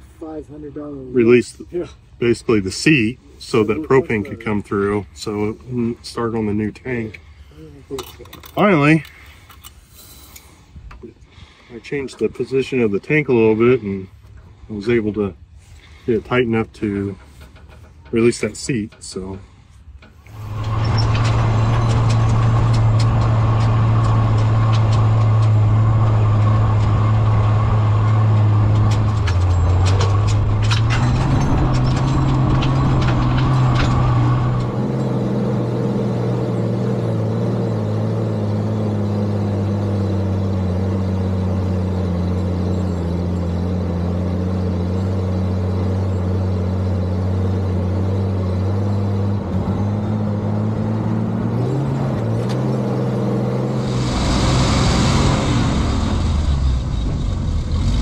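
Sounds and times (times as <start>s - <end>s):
truck engine running under load: 15.5s - 58.0s
rattling clanks: 16.6s - 36.9s
low wind rumble: 20.2s - 36.1s, 53.3s - 58.0s.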